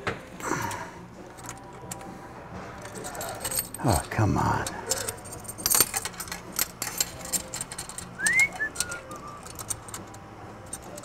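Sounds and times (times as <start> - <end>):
person whistling: 8.2 - 9.6.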